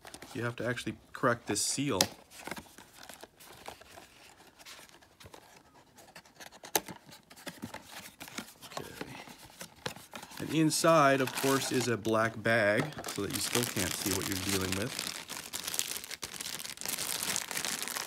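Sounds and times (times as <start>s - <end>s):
cardboard rustling and scraping: 2.2s - 12.0s.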